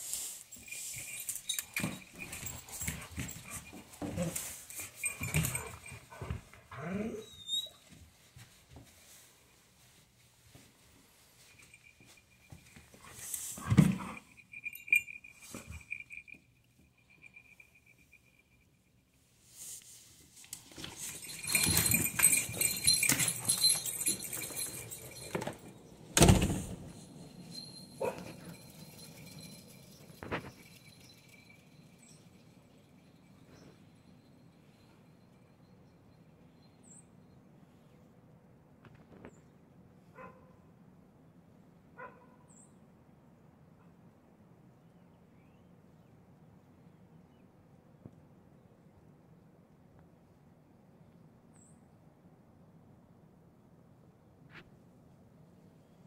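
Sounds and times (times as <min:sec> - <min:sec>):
collar tags jingling: 0:00.0 - 0:07.9, 0:11.0 - 0:19.2, 0:20.4 - 0:37.0
dogs whining and grumbling: 0:01.1 - 0:07.9, 0:21.1 - 0:25.7.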